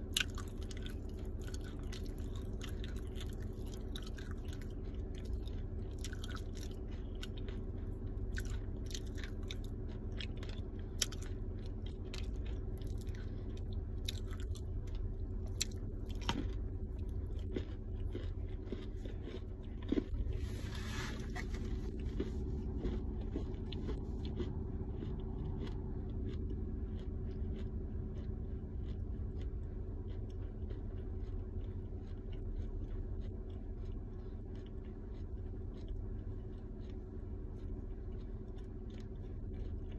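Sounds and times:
chewing and crunching clay: 0.0 - 39.9
steady low hum: 0.0 - 39.9
brief scraping noise: 20.4 - 21.9.

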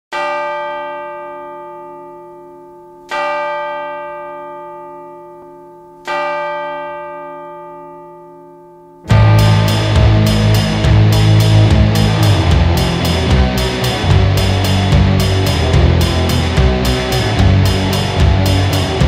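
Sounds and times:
bell tolling: 0.1 - 19.0.

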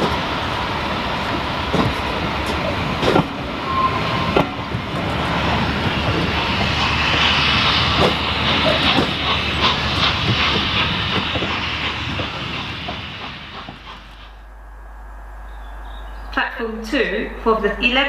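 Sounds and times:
wheels clicking over rail joints: 0.0 - 3.6, 4.3 - 14.2
steam train rumble and hiss: 0.0 - 14.5.

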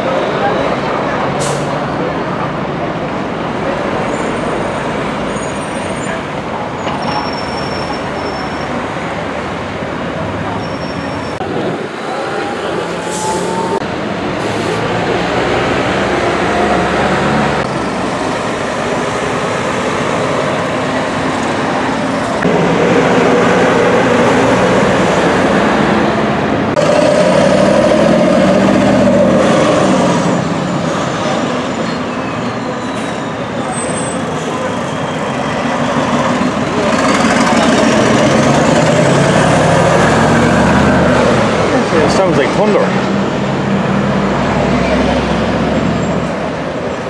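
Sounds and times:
diesel trucks passing: 0.0 - 47.0
tyre and road noise: 0.0 - 47.0.

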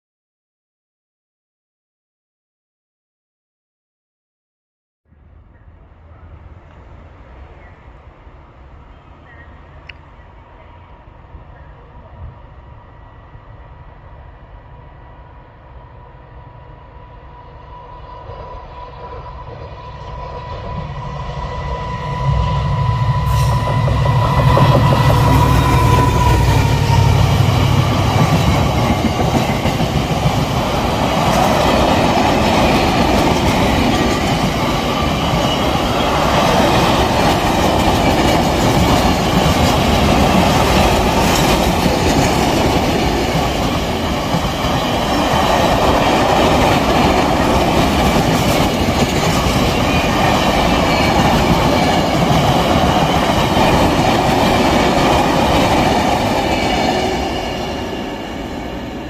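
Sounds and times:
freight train wheels rumbling: 5.8 - 59.0
high ringing of train wheels: 17.6 - 59.0.

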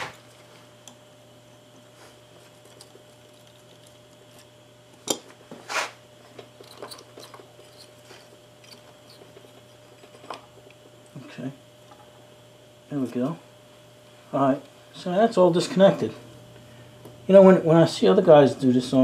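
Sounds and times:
faint steady hum: 0.0 - 19.0
pliers clicking and scraping metal: 6.4 - 7.9, 8.6 - 10.4.

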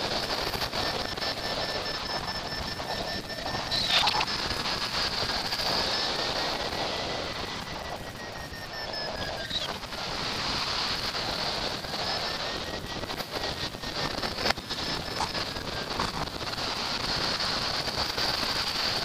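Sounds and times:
faint thin whistle: 2.1 - 4.3.

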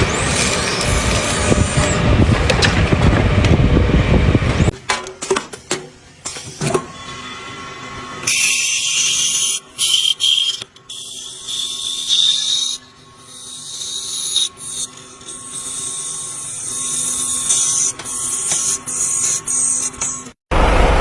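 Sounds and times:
lathe tool cutting plastic: 0.0 - 3.6, 8.2 - 20.4
faint machine hum: 0.0 - 21.0.

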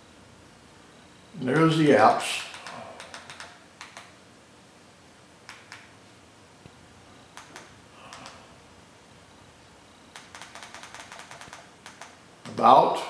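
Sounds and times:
remote button clicks: 7.3 - 8.4.

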